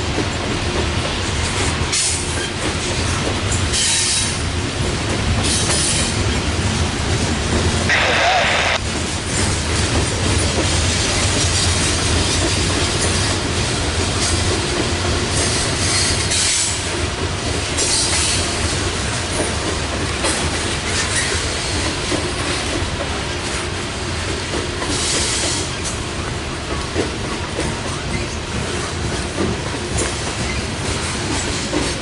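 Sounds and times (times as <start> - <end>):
freight train cars rumbling: 0.0 - 32.0.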